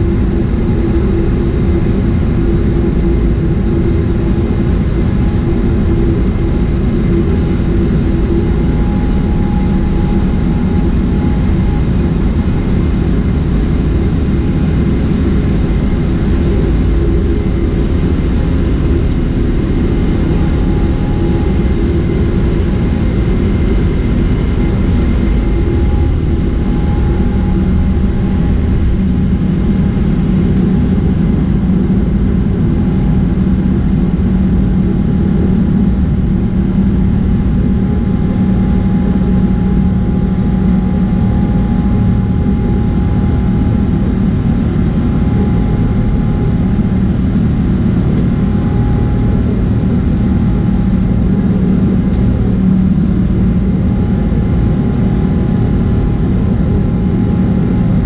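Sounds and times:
faint constant whine: 0:00.0 - 0:58.0
jet engines at takeoff in cabin: 0:00.0 - 0:58.0.

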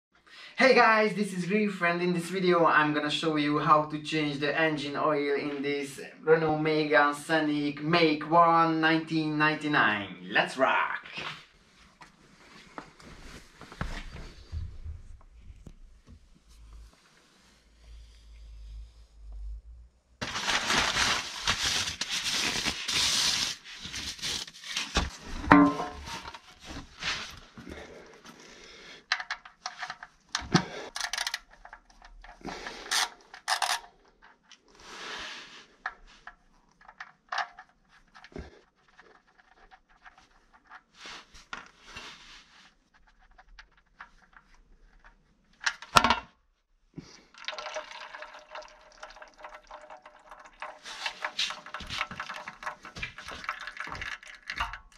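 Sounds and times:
metal pan scraping on concrete: 0:25.4 - 0:26.4
oil streaming into metal pan: 0:47.2 - 0:54.9.

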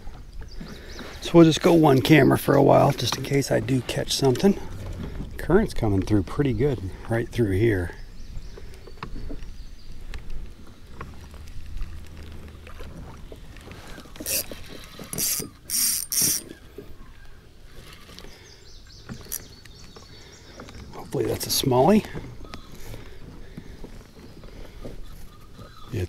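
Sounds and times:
fishing reel gears ticking: 0:14.2 - 0:16.6.

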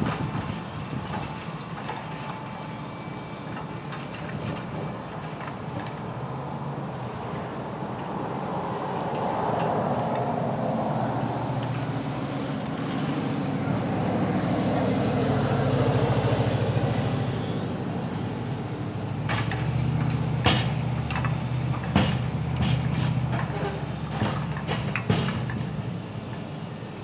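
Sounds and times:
diesel engine running: 0:00.0 - 0:27.0
metallic clanks and knocks: 0:19.2 - 0:25.8.

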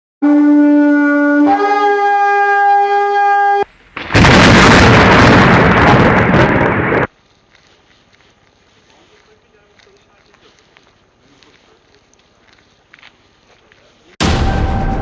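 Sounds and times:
horn notes: 0:00.2 - 0:03.7, 0:14.2 - 0:15.0
loud rushing blast: 0:04.0 - 0:07.1, 0:14.2 - 0:15.0.

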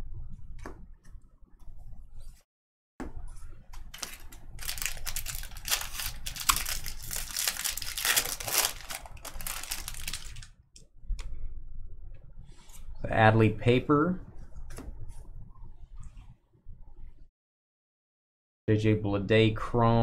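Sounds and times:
foil wrapper crinkling: 0:03.8 - 0:10.5.

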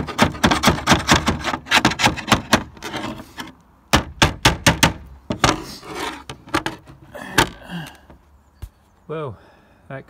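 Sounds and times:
rubbing close to microphone: 0:00.0 - 0:03.6, 0:05.3 - 0:07.1.

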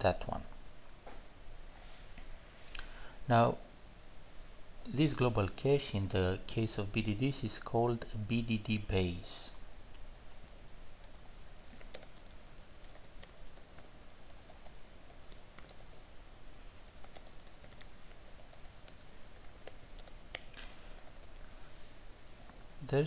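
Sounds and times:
computer keyboard typing: 0:11.0 - 0:16.0, 0:16.9 - 0:20.4, 0:21.0 - 0:21.5.

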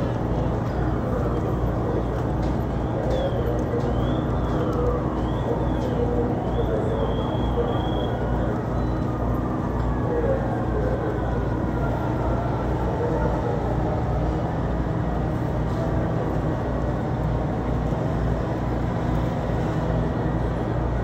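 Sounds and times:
faint voices: 0:00.0 - 0:16.2
fire truck engines droning: 0:00.0 - 0:21.0.

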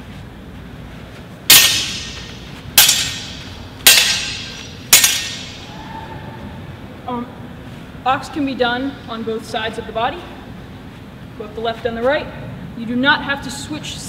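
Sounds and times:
swords clashing with ringing clang: 0:01.5 - 0:05.8.

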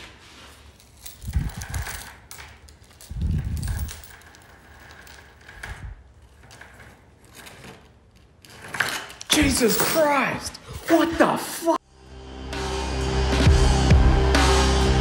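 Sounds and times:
metal chain clinking on steel: 0:00.4 - 0:11.2
rattles and knocks: 0:00.8 - 0:10.2.

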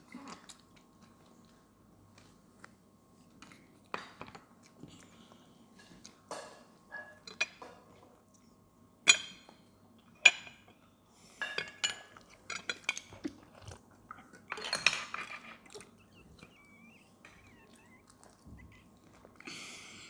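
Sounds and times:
cutlery clinking and scraping plates: 0:11.4 - 0:13.2, 0:14.5 - 0:15.8.

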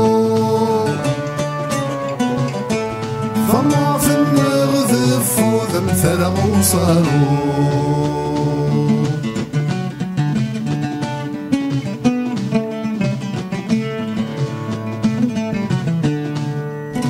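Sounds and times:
lute picked notes: 0:00.0 - 0:17.0.

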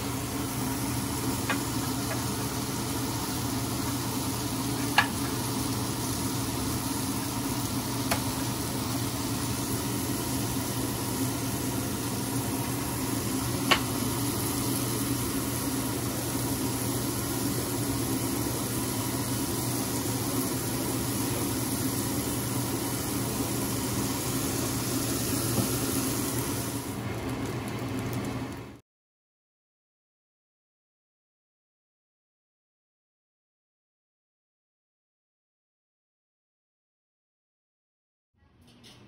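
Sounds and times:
mushrooms sizzling in pan: 0:00.0 - 0:28.1.

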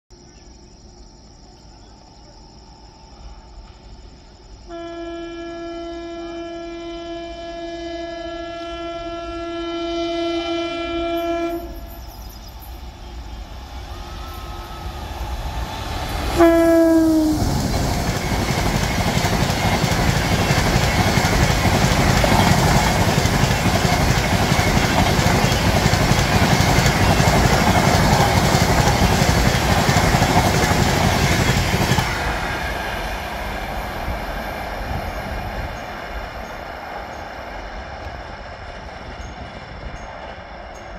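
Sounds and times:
train wheels roaring on rails: 0:01.4 - 0:40.9
train horn blast: 0:04.7 - 0:12.0, 0:16.1 - 0:17.7
clickety-clack over rail joints: 0:17.2 - 0:40.9.

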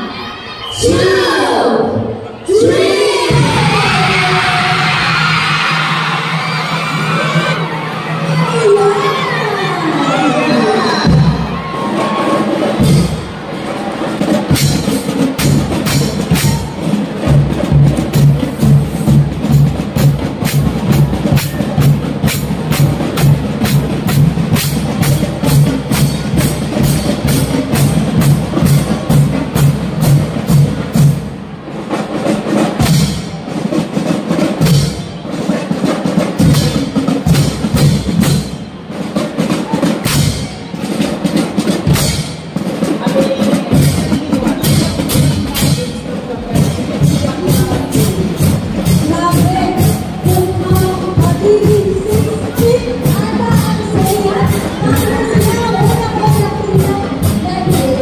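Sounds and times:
music with driving drum beat: 0:11.0 - 0:58.0.

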